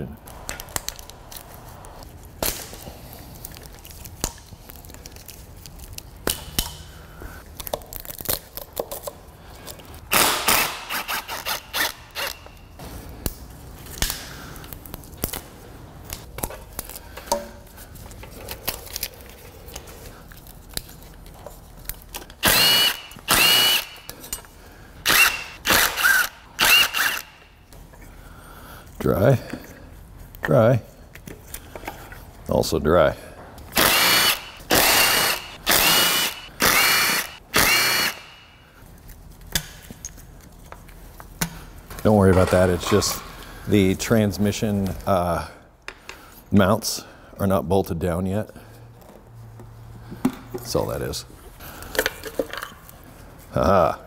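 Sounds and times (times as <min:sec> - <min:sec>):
cordless ratchet whirring: 0:10.1 - 0:12.5, 0:22.4 - 0:24.1, 0:25.0 - 0:27.4, 0:33.8 - 0:38.4.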